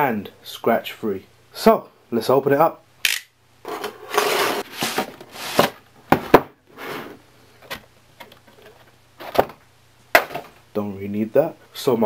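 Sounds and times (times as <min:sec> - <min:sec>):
cardboard scraping and rubbing: 0:03.7 - 0:05.8.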